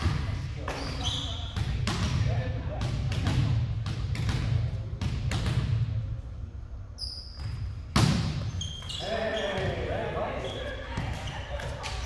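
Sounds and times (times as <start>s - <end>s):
ball bouncing on gym floor: 0.0s - 6.0s, 7.4s - 10.0s, 10.9s - 12.0s
high squeak: 8.5s - 9.6s.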